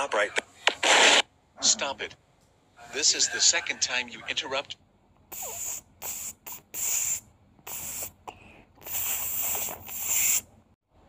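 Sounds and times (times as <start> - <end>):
harsh static hiss bursts: 0.7 - 1.3, 8.8 - 10.5.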